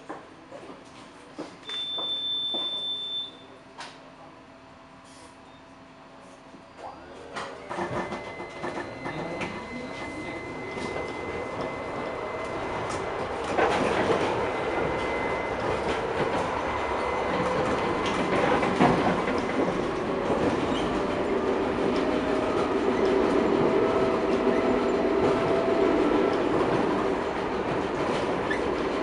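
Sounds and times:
tram rolling rumble: 5.9 - 29.0.

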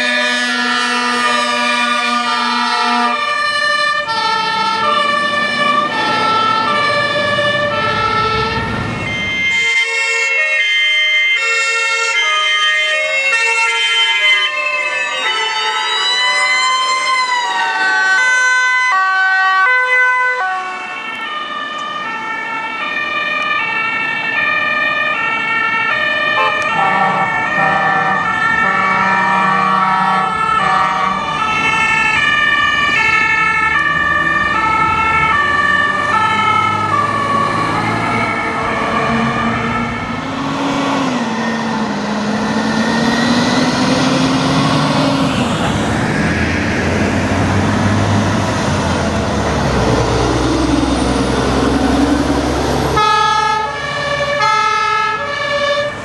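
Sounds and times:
truck engine rumbling: 0.0 - 56.0
two-tone fire truck sirens: 0.0 - 56.0.

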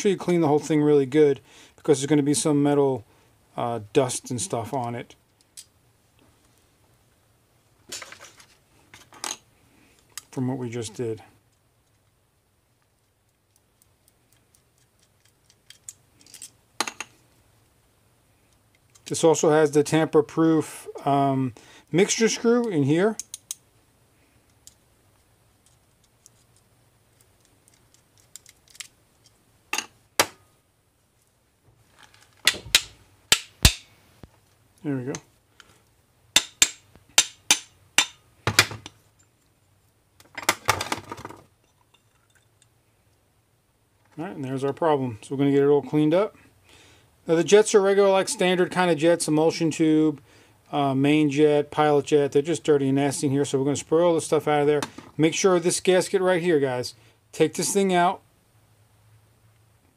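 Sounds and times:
screwdriver clicking and scraping metal: 13.5 - 16.6, 23.2 - 23.6
sharp metallic clicks and taps: 23.2 - 23.6.

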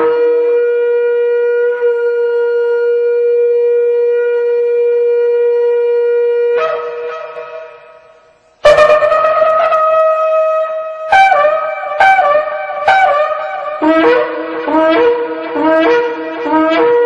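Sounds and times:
long horn blast: 6.1 - 17.0.

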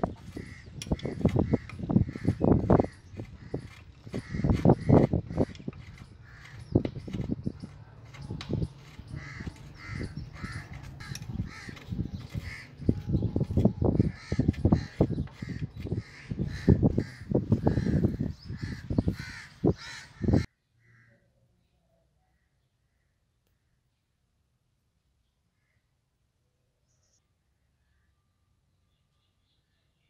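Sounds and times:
bird calling: 0.0 - 21.2
wrench knocking and scraping on metal: 0.2 - 15.9.

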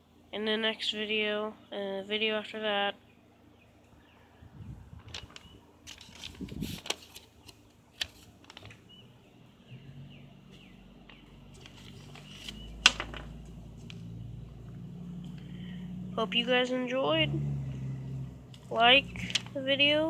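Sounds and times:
paper rustling: 5.0 - 9.0, 11.1 - 14.1, 18.6 - 19.6.

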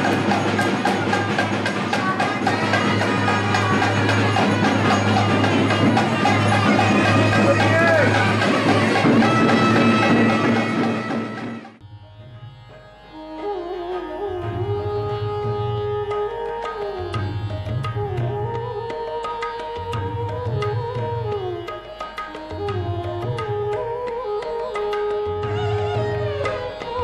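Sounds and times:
drum beat: 0.0 - 11.8
sliding instrumental melody: 0.0 - 27.0.

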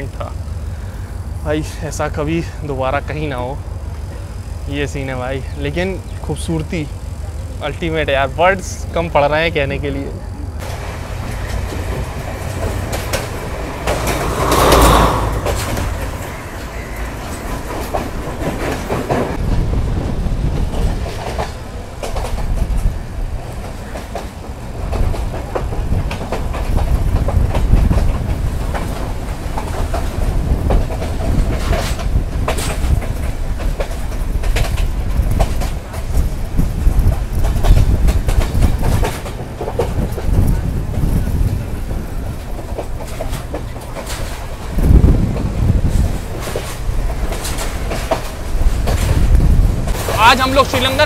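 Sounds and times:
low train rumble: 0.0 - 51.0
passing train rushing: 0.0 - 51.0
train wheels clacking over rail joints: 10.6 - 19.4, 20.5 - 51.0.

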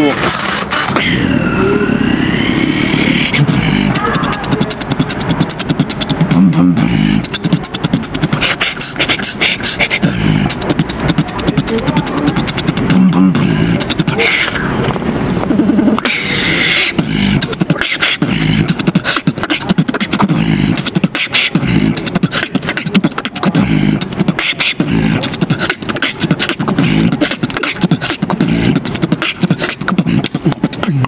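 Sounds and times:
human beatboxing: 0.0 - 31.0
low hummed bass tones: 1.0 - 16.0, 17.0 - 18.9.

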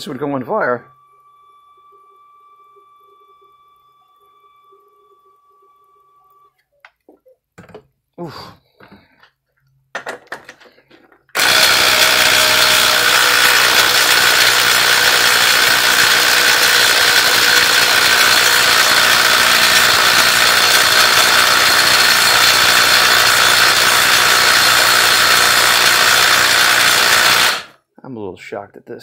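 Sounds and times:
impact wrench hammering: 11.4 - 27.7.

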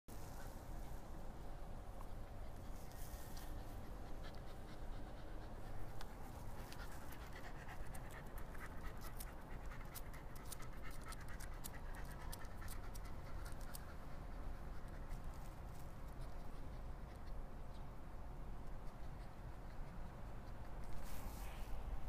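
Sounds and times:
low background rumble: 0.2 - 22.0
dog panting: 2.0 - 17.6
small irregular clicks: 5.9 - 14.0.

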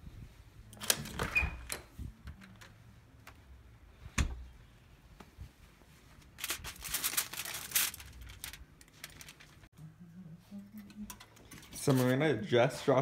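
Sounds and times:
aluminium foil crinkling: 6.2 - 9.7.

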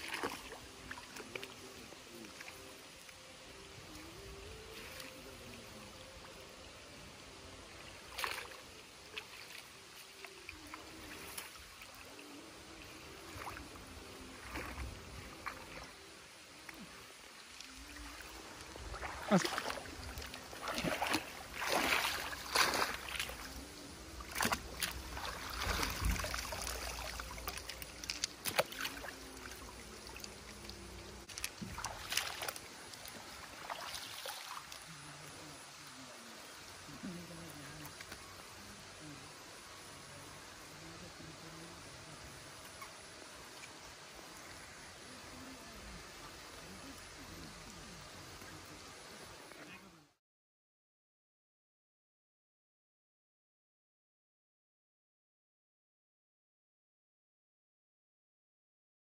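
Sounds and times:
water sloshing and splashing: 0.0 - 3.0, 7.8 - 35.0.

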